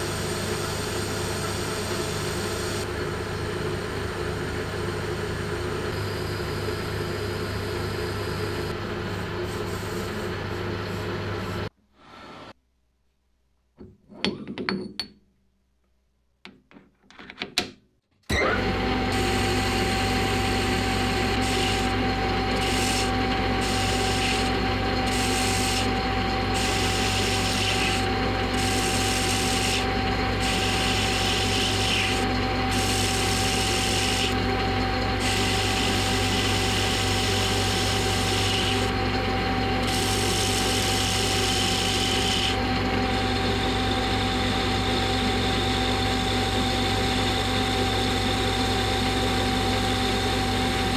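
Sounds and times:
metal lathe humming and whining: 18.3s - 50.9s
lathe tool scraping metal: 19.1s - 43.6s.

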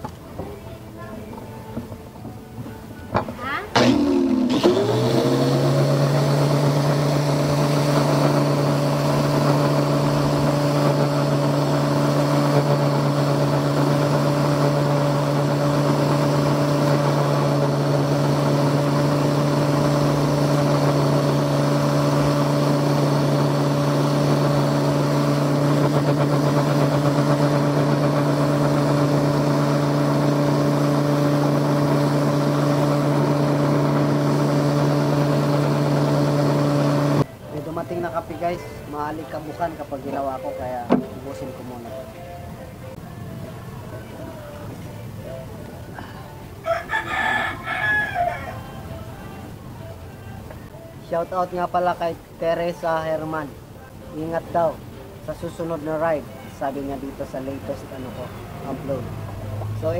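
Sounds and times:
angle grinder motor whine: 3.7s - 37.3s.

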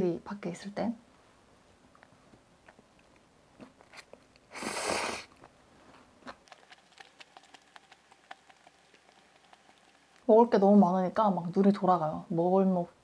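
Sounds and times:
chewing with mouth smacks: 1.9s - 4.6s, 6.2s - 10.3s
person slurping noodles: 3.9s - 5.4s.

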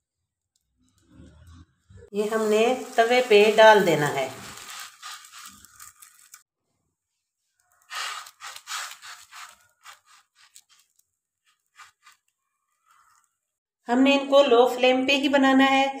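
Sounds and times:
faint sizzle: 0.8s - 6.4s, 7.6s - 13.4s.

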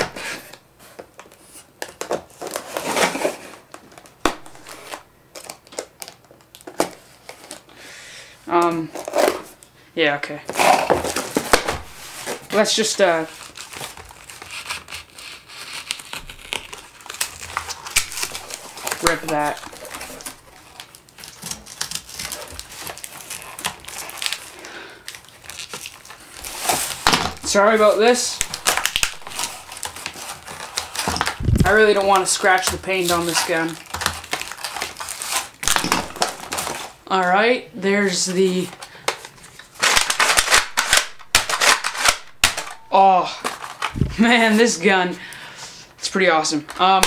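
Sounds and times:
plastic and cardboard crinkling: 0.0s - 7.7s, 8.6s - 9.7s, 10.4s - 37.2s, 38.0s - 44.9s
knife scraping packing tape: 13.4s - 27.1s, 33.0s - 37.0s, 39.8s - 42.8s.

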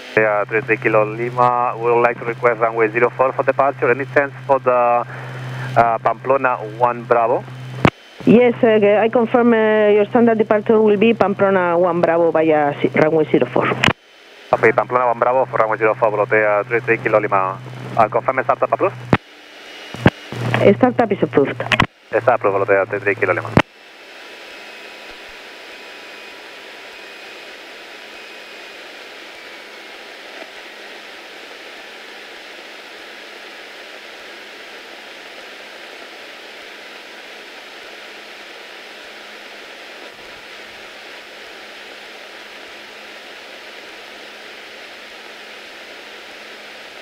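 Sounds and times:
airplane cabin hiss: 0.1s - 8.3s.

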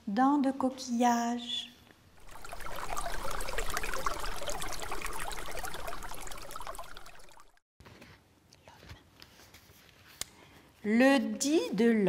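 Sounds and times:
running water trickling: 2.2s - 7.6s.

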